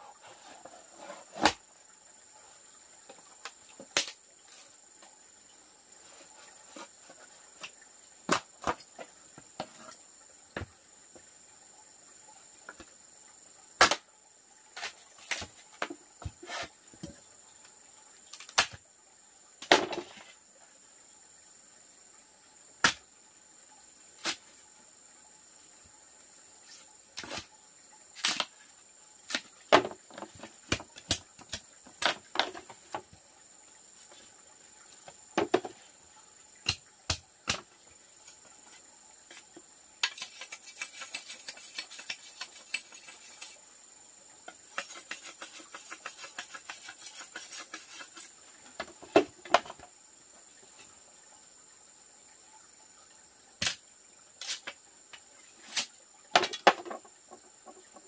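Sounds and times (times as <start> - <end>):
insect drone: 0.0 - 58.0
machete chopping bamboo: 3.9 - 4.2, 13.8 - 14.0, 36.6 - 37.7, 53.6 - 53.8.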